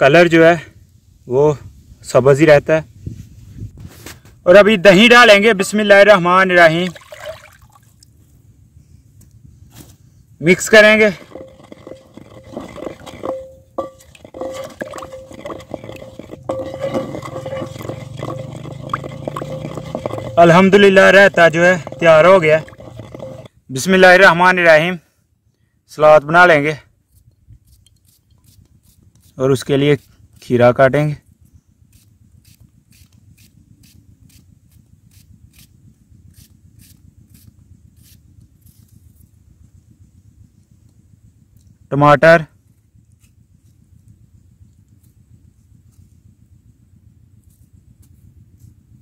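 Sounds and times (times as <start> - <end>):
low steady hum: 5.3 - 25.9
wet scraping in clay bowl: 10.6 - 23.5.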